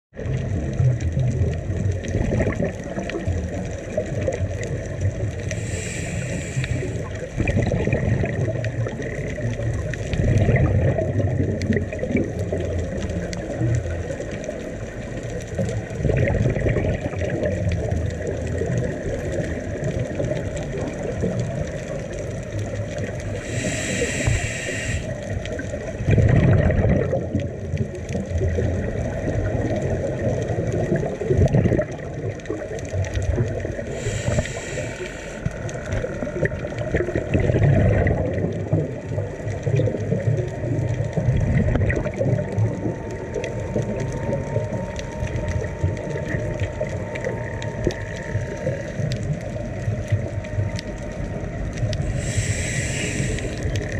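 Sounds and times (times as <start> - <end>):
underwater bubbles gurgling: 0.1 - 53.9
brief hisses: 23.5 - 25.1, 52.1 - 53.6.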